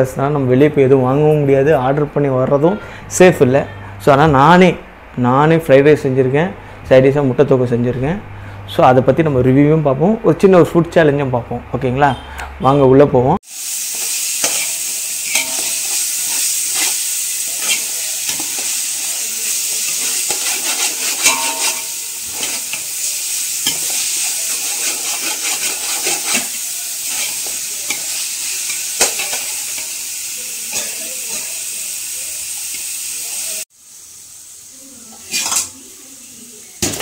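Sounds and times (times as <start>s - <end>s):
vegetables sizzling in oil: 13.4s - 37.0s
metal spoon scraping a pot: 14.4s - 18.8s, 19.9s - 22.9s, 23.6s - 28.1s, 35.2s - 35.7s.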